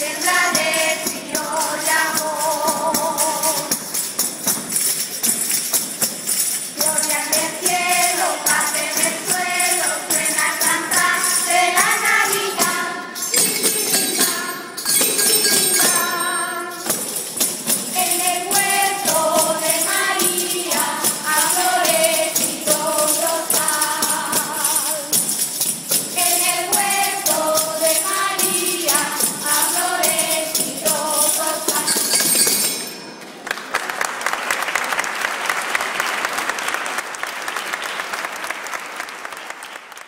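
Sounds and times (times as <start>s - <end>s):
children singing in unison: 0.0s - 3.7s, 6.8s - 14.9s, 17.9s - 25.1s, 26.2s - 32.5s
jingling frame drums: 0.0s - 33.2s
applause: 33.2s - 40.0s.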